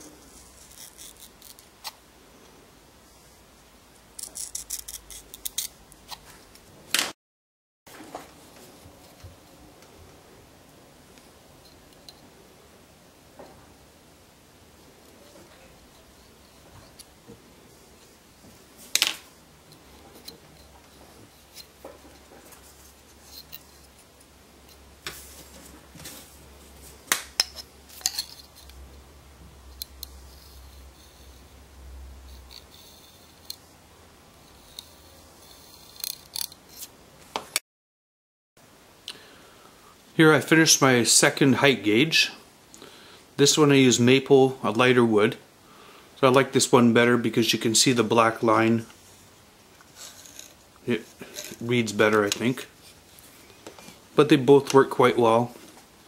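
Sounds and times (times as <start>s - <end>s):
tool scratching plexiglass: 0.0s - 2.0s, 4.2s - 6.2s.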